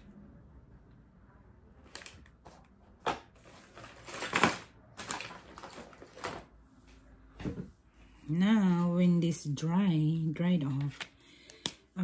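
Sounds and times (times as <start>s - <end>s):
rustles of handling things: 1.8s - 9.0s.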